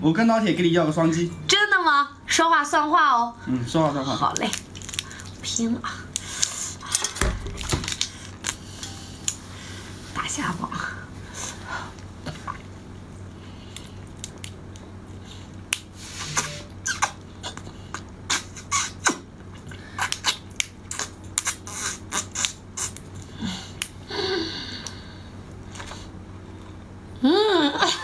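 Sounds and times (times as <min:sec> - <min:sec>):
sharp wet sucking: 0:20.0 - 0:23.0.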